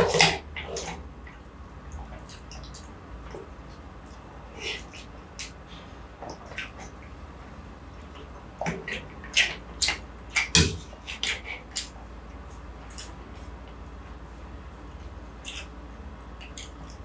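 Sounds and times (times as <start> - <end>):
wet mouth clicks and smacks: 12.9 - 13.2, 15.4 - 15.8, 16.4 - 17.0.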